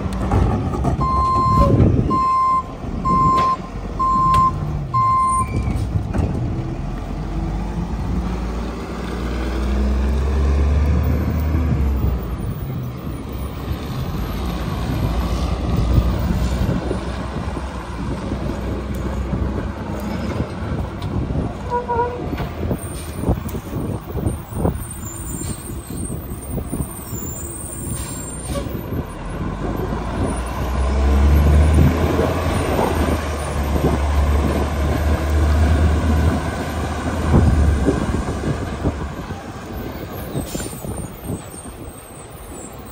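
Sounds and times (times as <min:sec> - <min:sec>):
truck clanks: 0:00.0 - 0:07.5
garbage truck diesel engine: 0:00.0 - 0:42.9.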